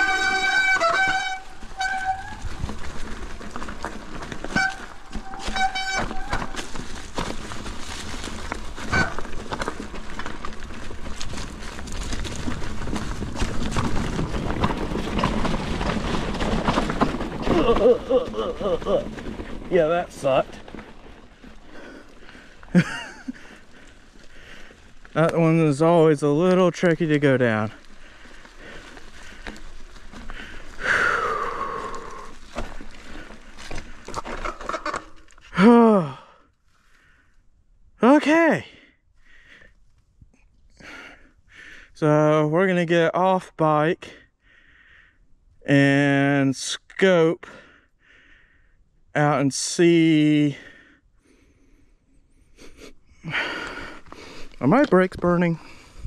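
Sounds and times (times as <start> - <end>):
brakes squealing: 0.0 - 35.7
bike tyres crunching through leaves: 0.0 - 37.2, 53.2 - 56.0
bike rattling over rough ground: 0.0 - 37.4, 49.2 - 56.0
person sighing loudly: 35.5 - 36.5.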